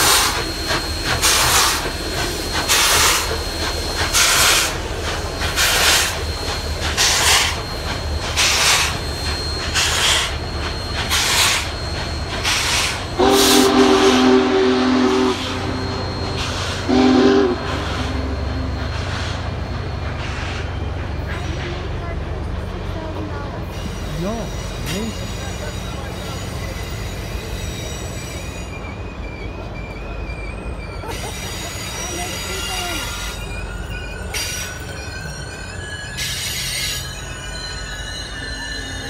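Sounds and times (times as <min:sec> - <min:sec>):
locomotive chime whistle: 0:00.0 - 0:22.4, 0:23.1 - 0:39.0
steam locomotive chuffing: 0:00.0 - 0:39.0
train rumbling by: 0:00.0 - 0:39.0.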